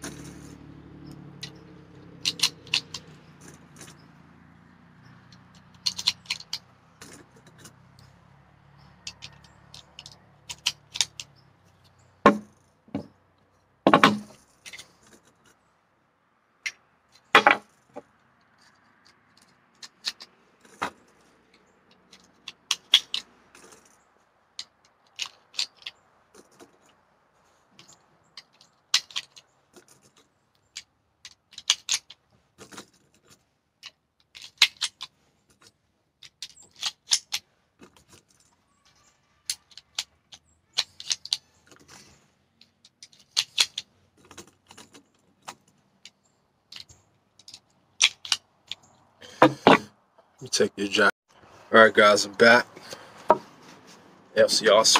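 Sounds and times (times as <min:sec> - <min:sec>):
cartridges clicking into magazine: 0:01.4 - 0:04.0, 0:05.3 - 0:07.7, 0:08.8 - 0:12.0, 0:21.9 - 0:23.9, 0:24.6 - 0:26.0, 0:27.8 - 0:30.0, 0:30.7 - 0:32.2, 0:34.3 - 0:35.1, 0:36.2 - 0:37.4, 0:39.4 - 0:40.1, 0:40.7 - 0:41.4, 0:42.8 - 0:43.9, 0:46.0 - 0:48.9.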